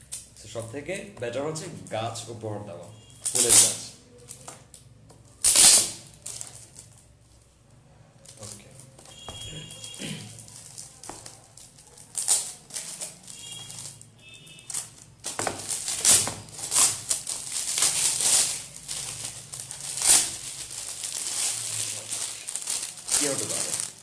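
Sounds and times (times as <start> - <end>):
wrapping paper crinkling and tearing: 3.2 - 4.5, 5.4 - 7.1, 8.2 - 24.0.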